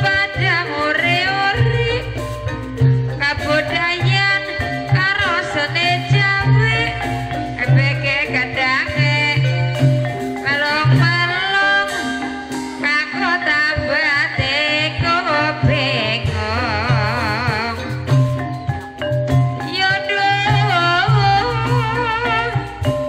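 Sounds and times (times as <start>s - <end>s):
steady drum beat: 0.0s - 12.8s, 15.0s - 23.0s
metallophones and xylophone melody: 0.0s - 23.0s
person singing with vibrato: 3.2s - 18.2s, 19.7s - 23.0s.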